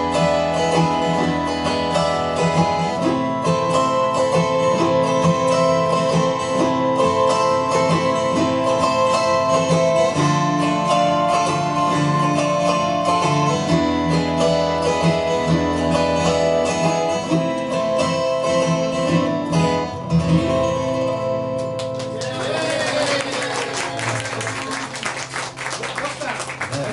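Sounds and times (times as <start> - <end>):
autoharp: 0.0 - 22.5
acoustic guitar strumming: 0.0 - 26.9
people clapping: 21.6 - 26.9.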